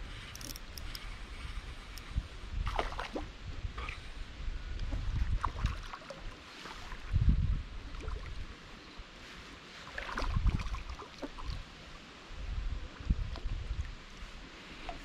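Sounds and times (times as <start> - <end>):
river water splashing: 2.6 - 4.0, 4.9 - 7.2, 9.5 - 12.3
low rumbles on microphone: 7.0 - 8.5.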